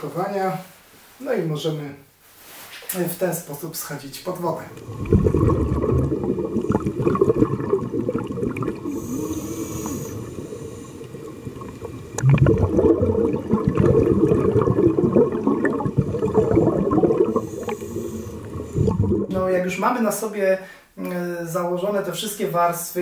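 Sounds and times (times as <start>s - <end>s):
exhaled bubbles gurgling: 4.6s - 19.6s
regulator inhalation hiss: 8.8s - 11.4s, 17.2s - 19.0s.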